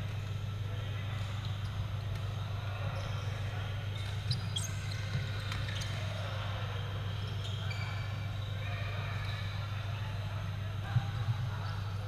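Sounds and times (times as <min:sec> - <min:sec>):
low hum of hall: 0:00.0 - 0:12.0
shoes squeaking on court: 0:02.9 - 0:06.3, 0:07.0 - 0:08.6.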